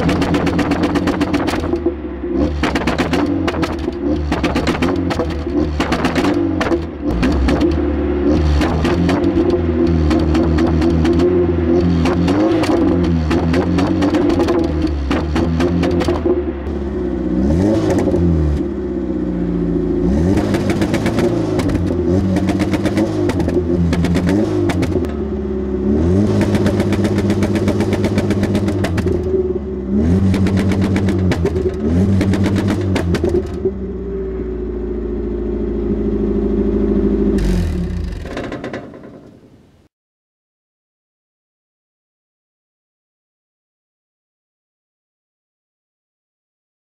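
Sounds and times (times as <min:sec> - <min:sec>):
exhaust pops: 0:00.0 - 0:17.0, 0:17.6 - 0:18.7, 0:20.3 - 0:25.3, 0:26.1 - 0:33.9, 0:37.3 - 0:39.6
engine revving: 0:00.0 - 0:38.8.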